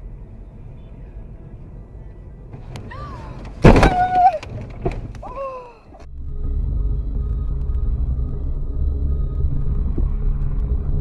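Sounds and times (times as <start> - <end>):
low road rumble: 0.0 - 11.0
loud car crash impact: 3.5 - 5.1.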